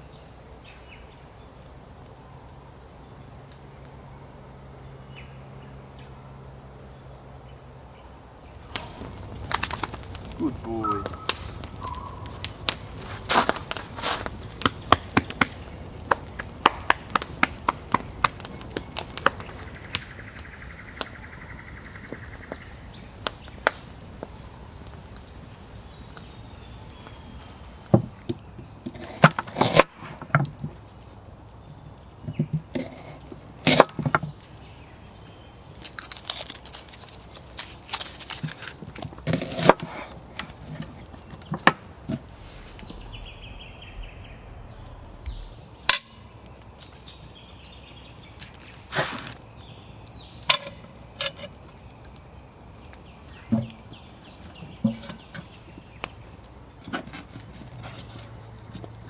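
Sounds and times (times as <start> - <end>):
low outdoor hiss: 0.0 - 59.0
faint bird chirps: 10.4 - 12.4, 42.4 - 46.3.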